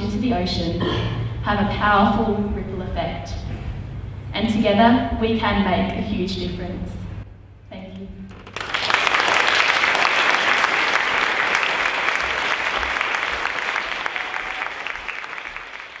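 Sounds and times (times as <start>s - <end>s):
audience applauding: 8.3s - 16.0s.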